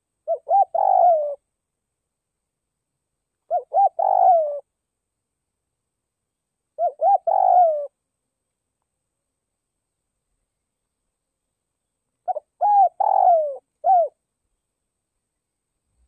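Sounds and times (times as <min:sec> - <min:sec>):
dove cooing: 0:00.2 - 0:01.4, 0:03.4 - 0:04.7, 0:06.8 - 0:08.0, 0:12.2 - 0:14.2.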